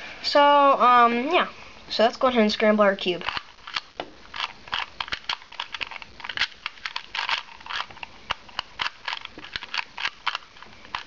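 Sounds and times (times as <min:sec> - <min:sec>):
puzzle cube clicking: 0:03.2 - 0:11.0.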